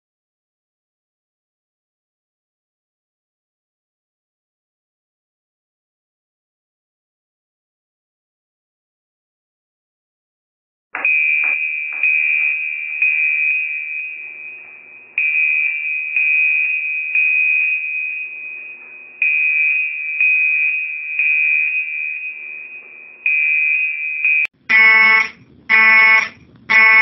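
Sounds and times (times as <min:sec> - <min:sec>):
high electronic alarm beep: 0:11.0 - 0:27.0.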